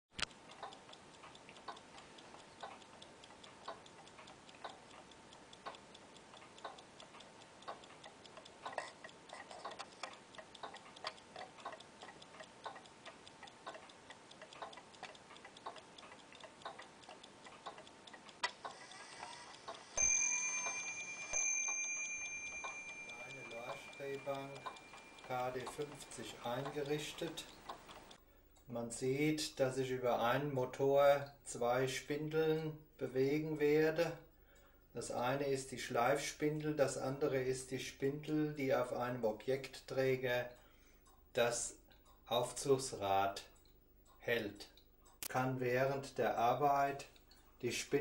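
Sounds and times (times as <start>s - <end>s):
clock ticking: 0.1s - 48.0s
high metallic ringing tone: 19.5s - 25.5s.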